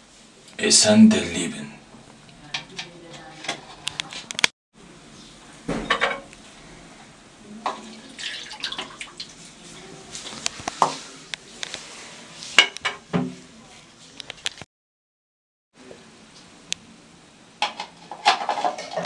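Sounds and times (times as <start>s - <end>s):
liquid pouring and splashing: 7.7s - 9.5s.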